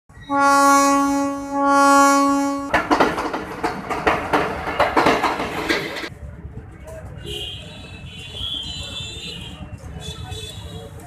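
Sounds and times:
train horn blast: 0.3s - 2.8s
train wheels clattering on rails: 2.6s - 6.1s.

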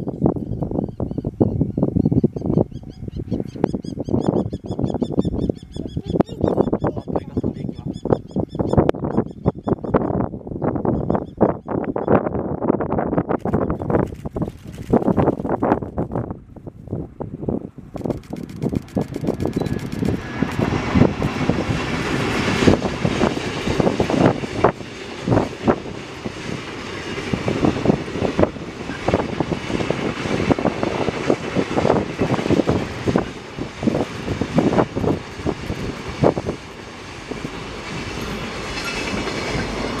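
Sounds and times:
freight train rumbling past: 0.0s - 40.0s
wheels clacking over rail joints: 18.0s - 40.0s.

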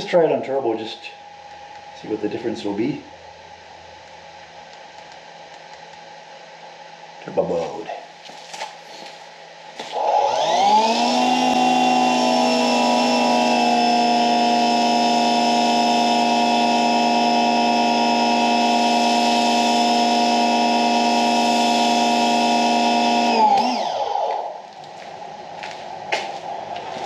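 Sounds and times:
pressure washer motor and pump: 9.8s - 24.7s.

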